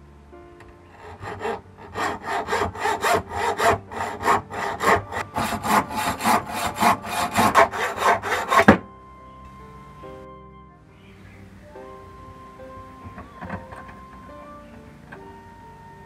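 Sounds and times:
hacksaw cutting steel rod: 0:01.0 - 0:08.8.

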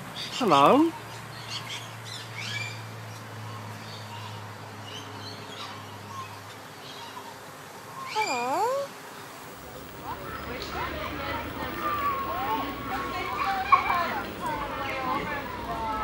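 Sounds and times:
parrot talking call: 0:08.0 - 0:08.9.

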